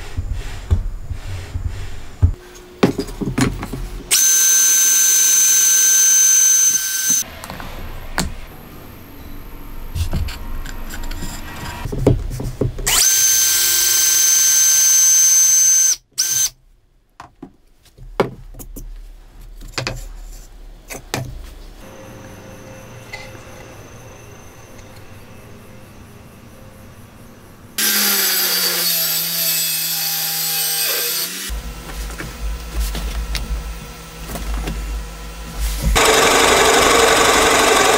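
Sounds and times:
drill whining into plywood: 4.1 - 7.2, 12.9 - 16.5, 27.8 - 31.6, 35.9 - 37.9
low-pitched power tool: 4.1 - 8.1, 12.9 - 16.5, 27.8 - 31.8, 33.3 - 37.9.

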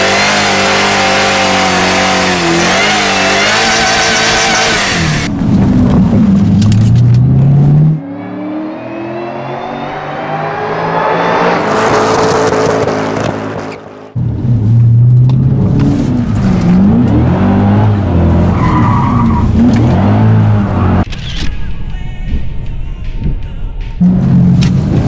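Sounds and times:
car engine revving: 0.0 - 21.1, 24.0 - 25.0
tyre screech: 2.5 - 5.3.

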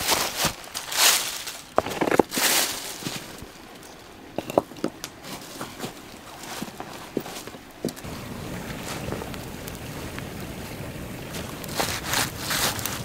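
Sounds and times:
footsteps crunching dry leaves: 0.0 - 3.4, 11.7 - 13.0.

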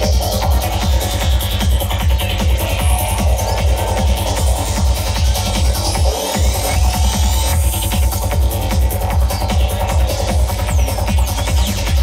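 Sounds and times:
trance dance music: 0.0 - 12.0.

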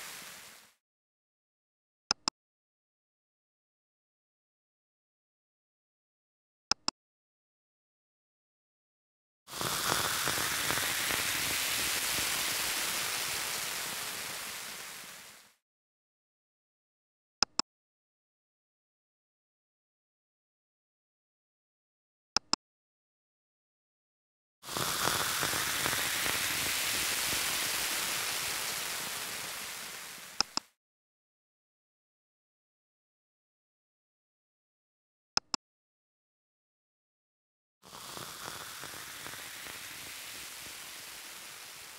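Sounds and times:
faint crackles: 0.0 - 0.7, 9.5 - 15.5, 24.7 - 30.7, 37.9 - 41.9
steady hiss: 0.0 - 0.7, 9.5 - 15.5, 24.7 - 30.6, 37.9 - 41.9
sharp clicks: 30.4 - 30.7.

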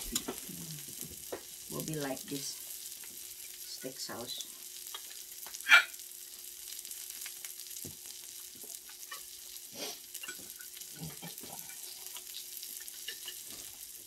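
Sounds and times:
meat sizzling on a grill: 0.0 - 14.0.

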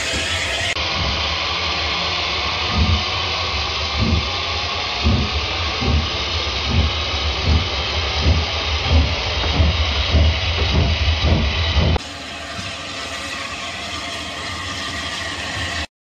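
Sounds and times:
model locomotive hissing: 0.0 - 15.9
low thumps: 2.7 - 3.1, 4.0 - 4.4, 5.0 - 12.0.

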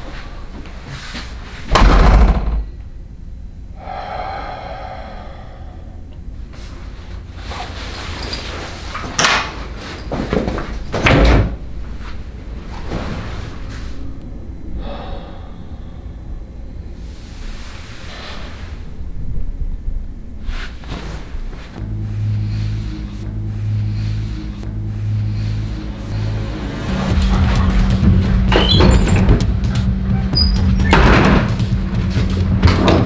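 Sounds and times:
door shutting with heavy thud: 1.7 - 2.7, 11.0 - 11.6, 27.2 - 31.8
steady pitched sound: 21.8 - 30.8.

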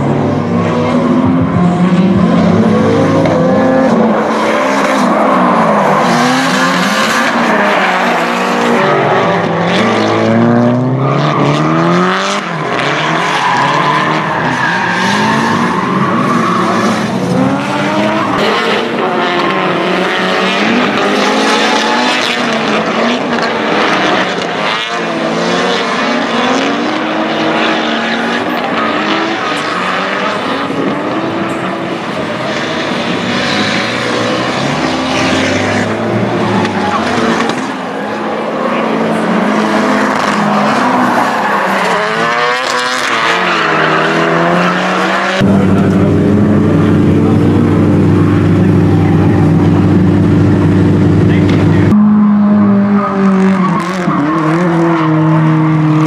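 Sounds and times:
car engines revving: 0.0 - 56.0
tyre squeal and skidding: 12.4 - 17.2, 53.3 - 56.0.

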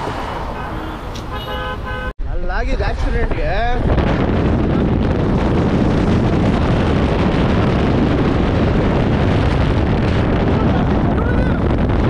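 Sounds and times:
car tyre and road noise: 0.0 - 2.2, 2.8 - 12.0
wind buffeting microphone: 2.6 - 12.0.

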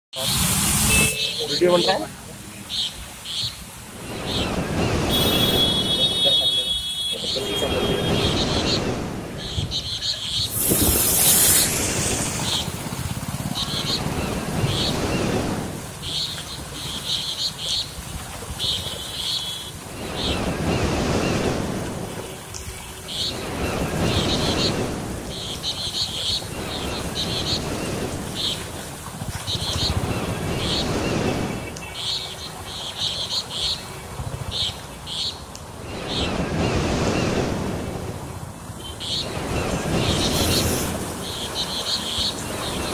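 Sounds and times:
floodwater sloshing and rushing: 0.2 - 42.9
wind noise on microphone: 7.5 - 16.0, 19.8 - 31.8, 35.8 - 41.5.

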